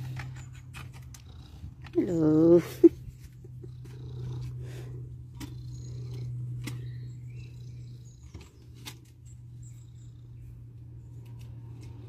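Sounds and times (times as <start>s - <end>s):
cat purring: 3.4s - 8.6s.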